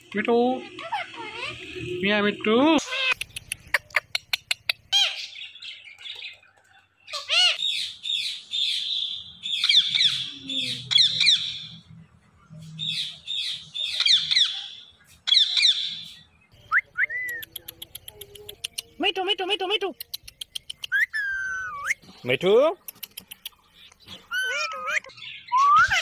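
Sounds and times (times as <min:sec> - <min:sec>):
parakeets squawking and chirping: 0:00.2 - 0:06.3, 0:07.0 - 0:11.9, 0:20.3 - 0:22.6, 0:23.2 - 0:26.0
quick clicks: 0:22.8 - 0:24.0.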